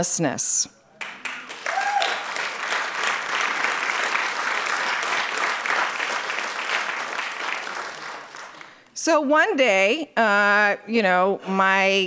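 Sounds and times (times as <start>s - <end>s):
audience applauding: 1.0s - 8.9s.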